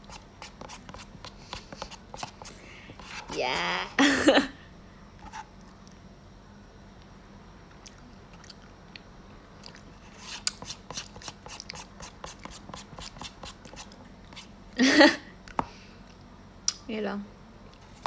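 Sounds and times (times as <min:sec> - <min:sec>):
crunchy chewing: 0:07.8 - 0:12.5.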